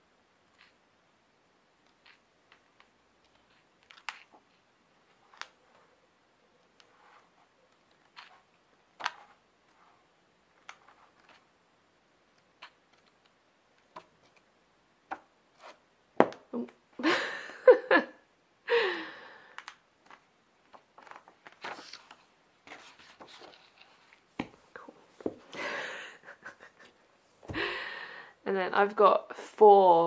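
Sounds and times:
book pages flapping: 3.2s - 5.9s, 6.7s - 11.5s, 19.6s - 25.6s
paper rustles and handling taps: 20.0s - 24.6s.

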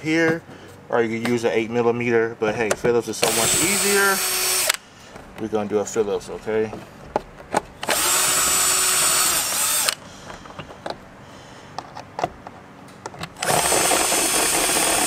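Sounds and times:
cordless drill whine: 3.2s - 4.8s, 7.8s - 10.0s, 13.4s - 15.0s.

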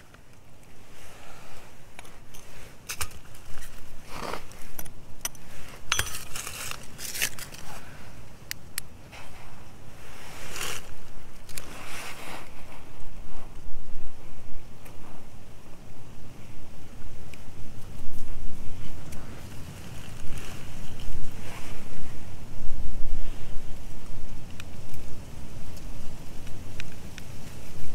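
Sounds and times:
soil and stones scraped by hand: 0.7s - 8.2s, 9.1s - 13.4s, 18.1s - 22.2s.

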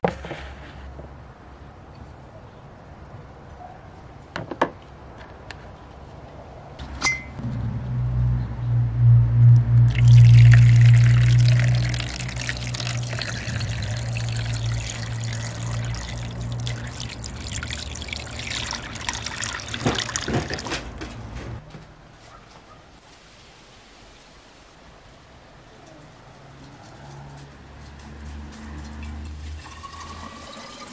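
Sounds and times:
low hum: 7.3s - 20.1s
liquid pouring into plastic tub: 9.9s - 20.8s
liquid splashing: 9.9s - 20.8s.

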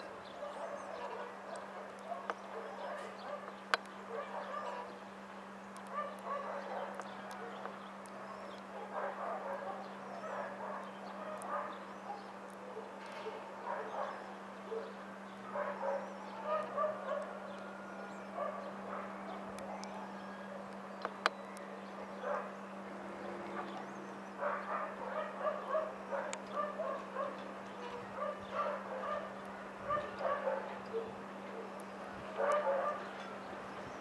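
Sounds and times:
dog barking: 0.4s - 3.5s, 4.1s - 4.9s, 5.9s - 7.7s, 8.7s - 17.4s, 18.4s - 19.2s, 22.2s - 22.5s, 24.4s - 31.7s, 32.4s - 33.1s.

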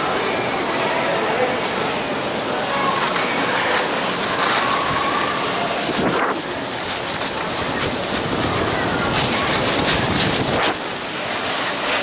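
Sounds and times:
skis sliding over packed snow: 2.4s - 12.0s
wind buffeting microphone: 5.8s - 11.0s.

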